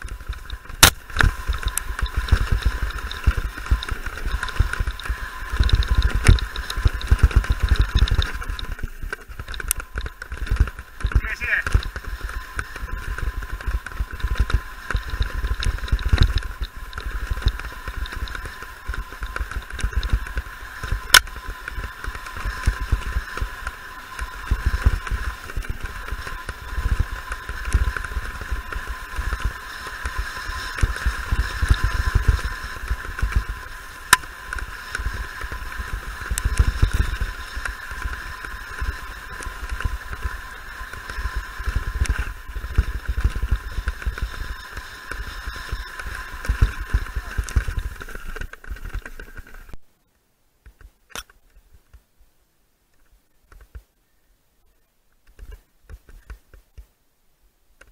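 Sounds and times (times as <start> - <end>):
sharp clicks: 0.0 - 23.4
steady high buzz: 0.0 - 50.1.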